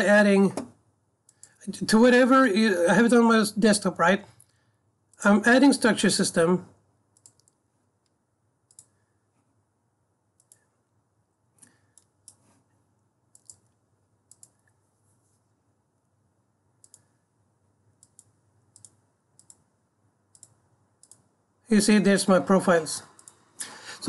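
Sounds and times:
computer mouse clicks: 1.3 - 1.6, 7.2 - 9.0, 10.4 - 10.7, 11.6 - 14.8, 16.8 - 17.2, 18.0 - 19.7, 20.3 - 21.3, 23.2 - 23.7.

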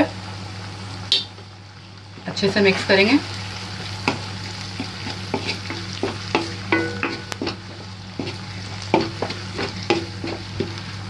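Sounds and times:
low steady hum: 0.0 - 11.0
sauce sizzling: 0.0 - 11.0
spatula scraping and knocking pan: 4.0 - 10.8.

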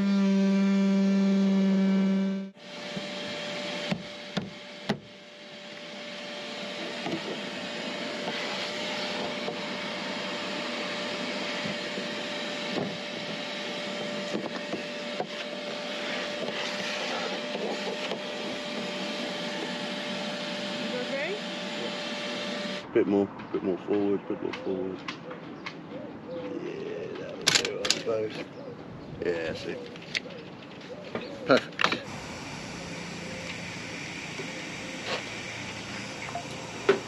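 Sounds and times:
shop vacuum running: 1.0 - 22.9, 31.9 - 37.0.

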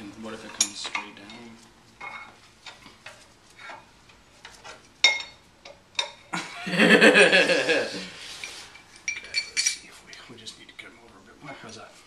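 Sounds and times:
metal parts clinking: 9.0 - 9.9.

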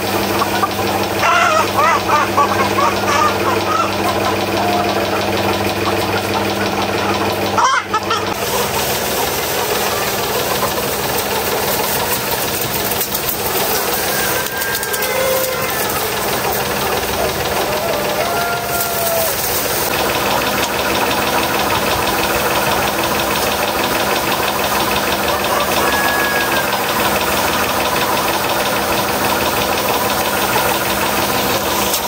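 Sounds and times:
machine low hum: 0.0 - 32.0
machine hissing: 8.2 - 32.0.

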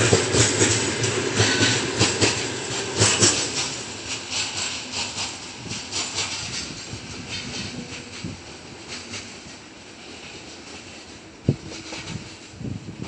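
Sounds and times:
train wheels clacking over rail joints: 0.0 - 13.0.

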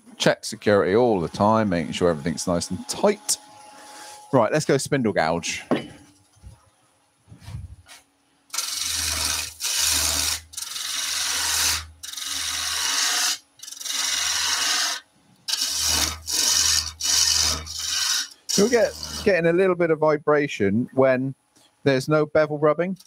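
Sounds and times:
faint steady hum: 0.1 - 23.0
gouge cutting wood on lathe: 0.9 - 4.3, 8.5 - 19.4.

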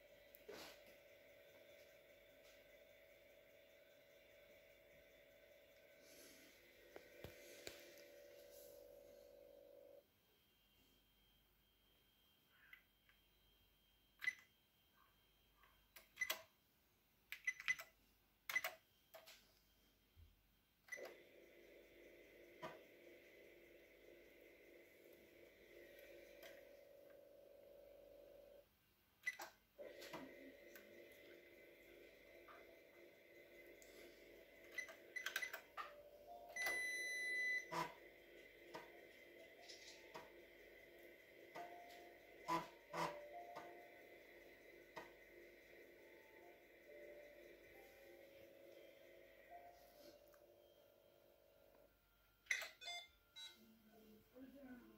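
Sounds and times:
steady hum: 0.0 - 14.0, 29.8 - 52.4.

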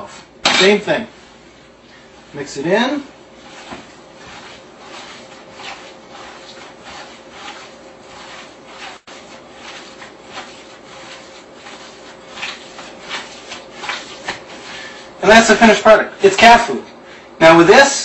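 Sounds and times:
hand kneading raw meat: 1.1 - 15.2.

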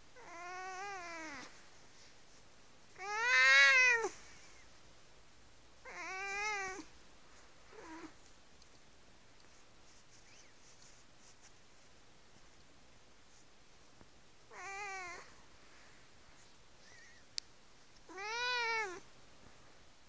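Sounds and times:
cat meowing: 3.0 - 4.1, 5.8 - 6.8, 14.5 - 15.3, 18.1 - 19.0.

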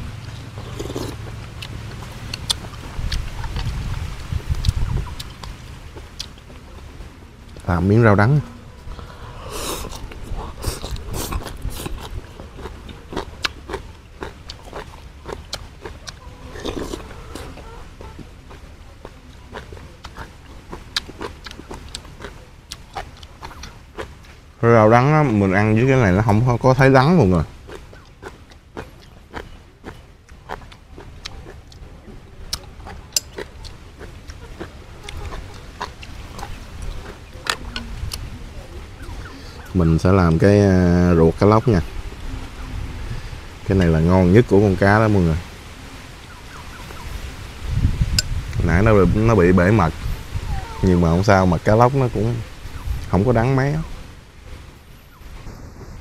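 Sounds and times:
mouth clicks: 0.2 - 6.4
person chewing: 0.2 - 7.7, 8.4 - 24.5, 26.1 - 40.4
wet smacking and clicks: 1.6 - 6.4, 10.8 - 24.4.

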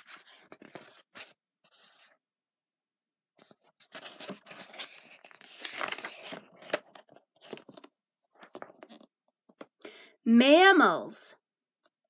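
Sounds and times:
paper pages rustling: 0.0 - 2.2, 3.4 - 9.1.

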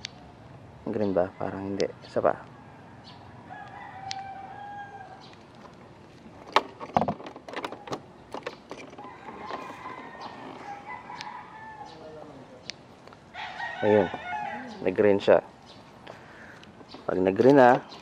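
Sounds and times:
rooster crowing: 1.4 - 5.3, 9.0 - 12.4, 13.3 - 15.0
sharp clicks and knocks: 5.3 - 9.7.

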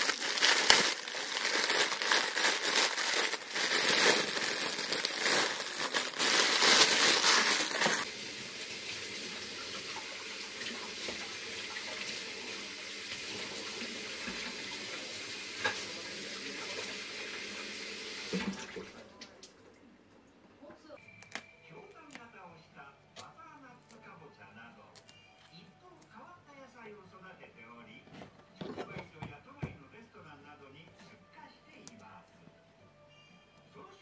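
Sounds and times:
plastic bag crinkling: 0.0 - 8.1
tap water running: 7.1 - 19.0.

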